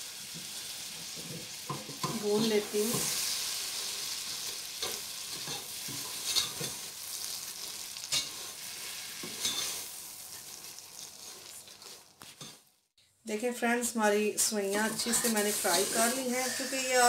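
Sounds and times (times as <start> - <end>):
noodles sizzling in butter: 0.0 - 12.9, 14.4 - 17.0
spoon scraping pot: 14.7 - 17.0.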